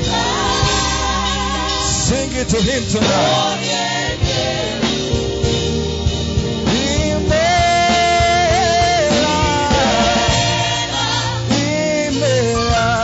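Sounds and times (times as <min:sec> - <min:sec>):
choir singing: 0:00.0 - 0:02.2, 0:03.0 - 0:12.2
band drums: 0:00.0 - 0:13.0
man singing: 0:01.8 - 0:03.6, 0:06.7 - 0:10.5, 0:11.4 - 0:13.0.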